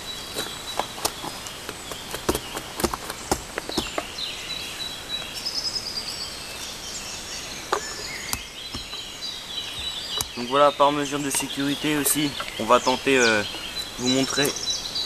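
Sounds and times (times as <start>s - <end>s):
birds chirping: 0.0s - 15.0s
hatchet chopping wood: 0.8s - 4.1s, 7.7s - 9.1s, 9.7s - 10.4s.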